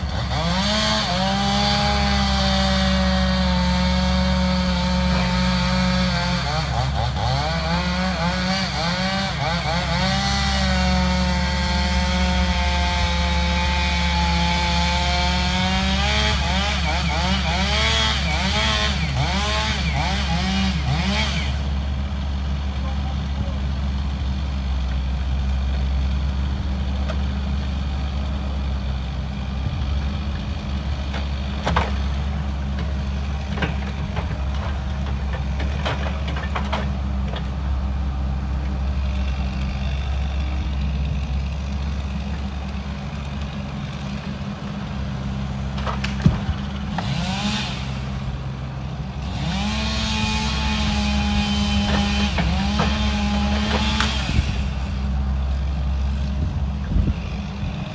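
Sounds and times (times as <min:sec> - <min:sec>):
diesel engine running: 0:00.0 - 0:57.9
grapple handling logs: 0:30.7 - 0:47.2, 0:49.8 - 0:57.4.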